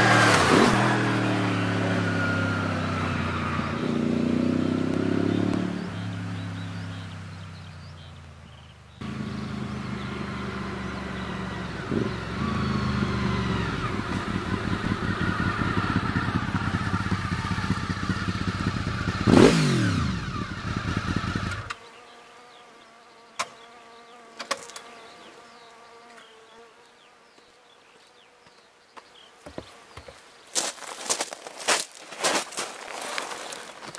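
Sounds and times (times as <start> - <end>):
motorcycle engine revving: 0.0 - 21.8.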